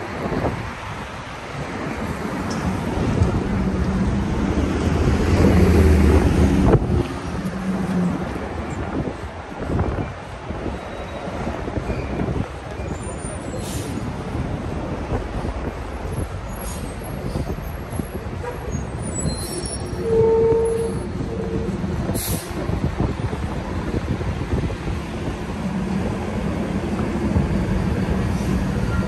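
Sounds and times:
street traffic rumbling: 0.0s - 29.0s
vehicle horn: 19.6s - 21.8s.

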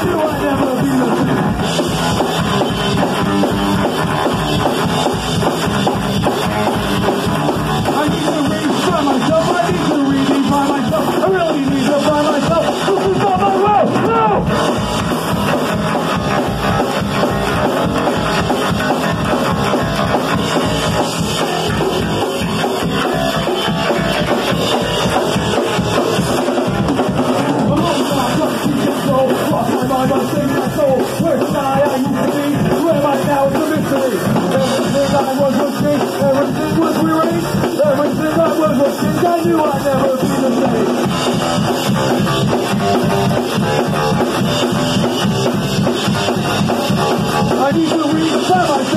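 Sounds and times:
man singing: 0.0s - 1.4s, 7.8s - 14.5s, 27.4s - 41.1s, 47.4s - 48.9s
drum kit beat: 0.0s - 48.9s
electric guitar: 0.0s - 48.9s.

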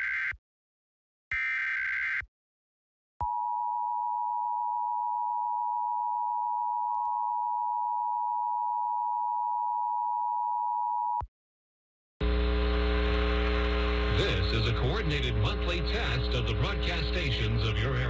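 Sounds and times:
two-tone emergency alert tone: 3.2s - 11.2s.

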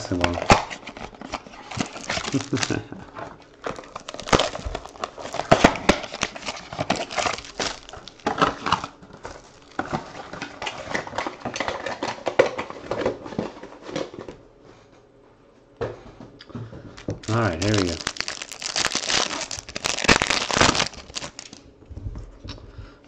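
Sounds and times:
wrappers crinkling: 0.0s - 2.9s, 3.5s - 12.2s, 17.2s - 21.6s.

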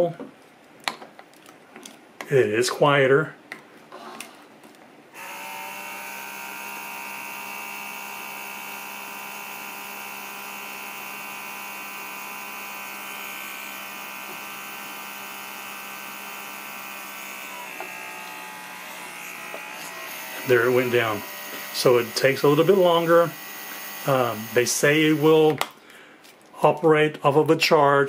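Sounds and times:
vacuum sealer motor pump running: 5.2s - 25.6s.

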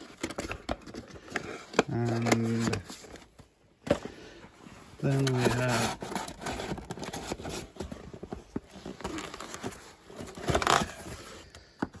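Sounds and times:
cardboard rubbing and rustling: 5.0s - 11.4s
cardboard scraping: 5.0s - 11.4s.

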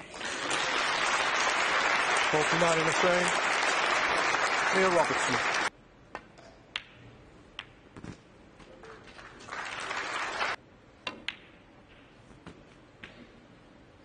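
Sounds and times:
audience applause: 0.0s - 5.7s, 9.2s - 10.6s.

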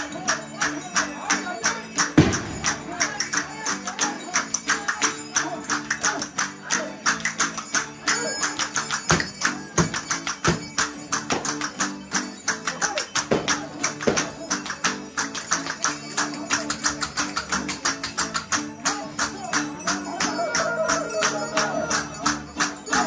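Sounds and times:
fast percussion beat: 0.0s - 23.0s.

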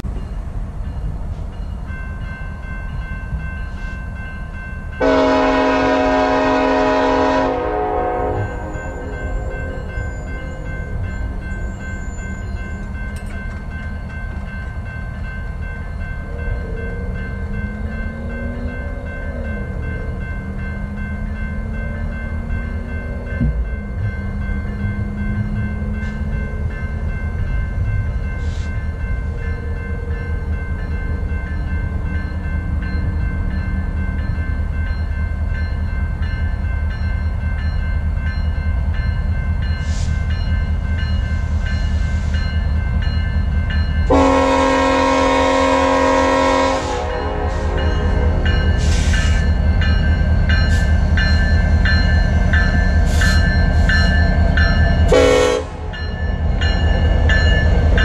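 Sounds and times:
diesel locomotive engine rumble: 0.0s - 58.0s
locomotive bell ringing: 0.0s - 58.0s
locomotive horn blast: 5.0s - 9.5s, 44.1s - 49.1s, 55.1s - 55.9s.

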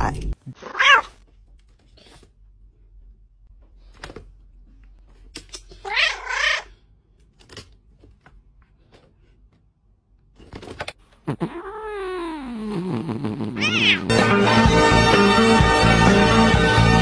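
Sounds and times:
cat meowing: 0.6s - 1.1s, 5.8s - 6.7s, 13.6s - 14.1s
cat yowling: 0.6s - 1.1s, 5.8s - 6.7s, 13.6s - 14.1s.

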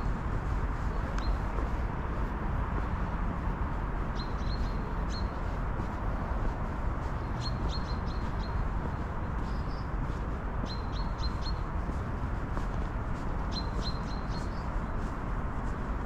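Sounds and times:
low outdoor rumble: 0.0s - 16.0s
small bird chirping: 13.5s - 14.7s.

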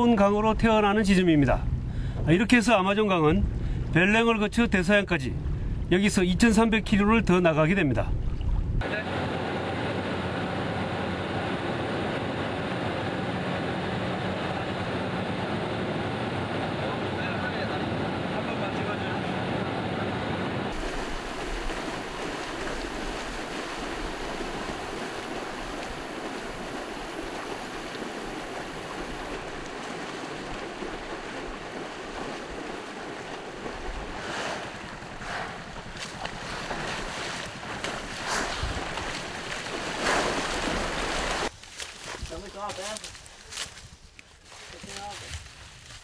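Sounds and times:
water churning and splashing: 7.6s - 18.8s, 20.3s - 41.5s.

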